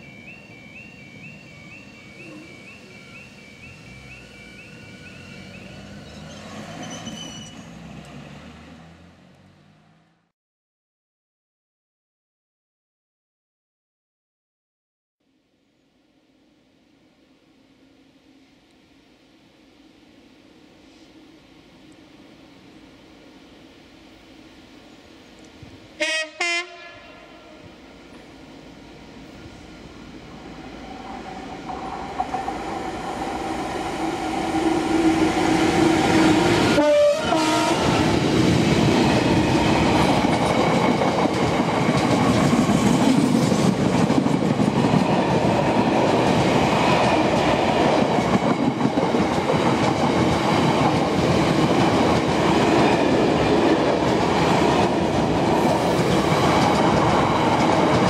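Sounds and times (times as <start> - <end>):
train rumbling past: 0.0 - 10.3, 16.3 - 58.0
train horn blast: 26.0 - 27.7, 34.0 - 38.1.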